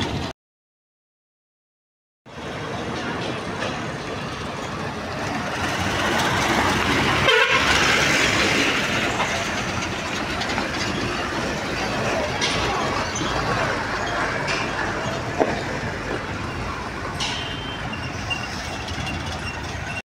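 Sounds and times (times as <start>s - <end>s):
heavy trucks driving on gravel: 0.0s - 0.3s, 2.3s - 20.0s
truck horn toot: 7.2s - 7.9s, 17.3s - 18.0s.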